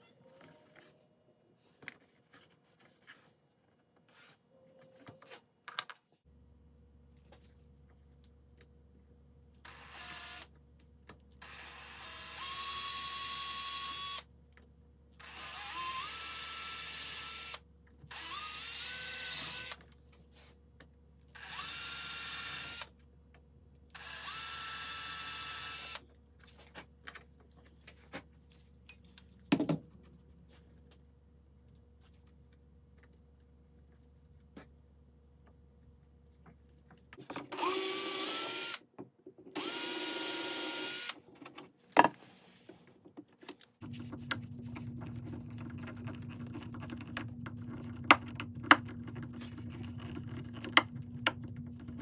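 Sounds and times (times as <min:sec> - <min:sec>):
cordless drill whirring: 0:09.6 - 0:10.5, 0:11.4 - 0:14.3, 0:15.2 - 0:19.8, 0:21.4 - 0:22.9, 0:24.0 - 0:26.0, 0:37.5 - 0:38.8, 0:39.6 - 0:41.2.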